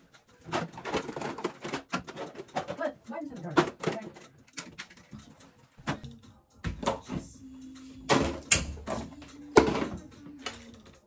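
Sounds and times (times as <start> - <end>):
small objects clicking and knocking: 0.4 - 2.9.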